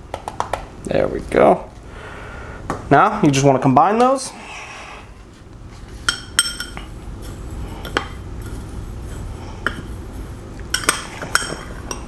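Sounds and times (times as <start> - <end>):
spoon stirring dry rub: 5.8 - 12.0
spoon clinking on glass bowl: 6.1 - 6.9.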